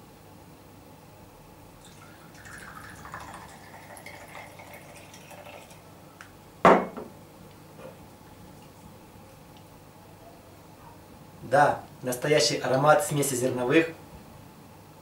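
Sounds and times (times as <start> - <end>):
liquid trickling into glass: 1.8 - 6.0
glass bottle set down: 6.7 - 7.1.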